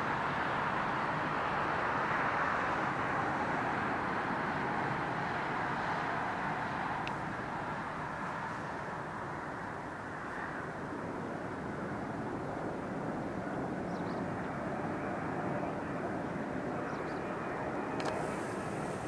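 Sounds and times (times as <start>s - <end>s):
distant jet engine rush: 0.0s - 19.0s.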